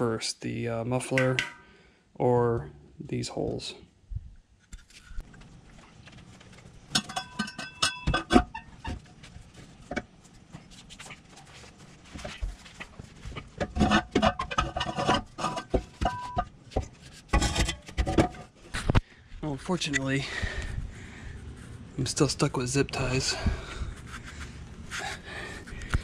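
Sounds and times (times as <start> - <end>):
sharp metallic knocks ringing: 1.2 - 1.7
exhaust pipe clanking and scraping: 6.0 - 19.0.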